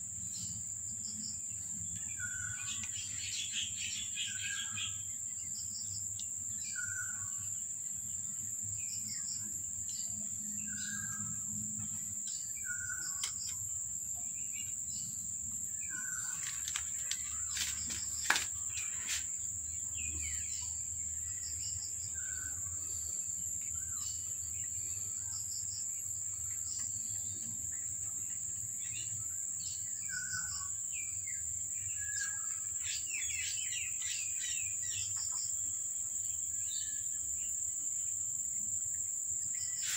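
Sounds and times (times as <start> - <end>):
high insect whine: 0.0 - 39.9
birds chirping: 8.8 - 35.5.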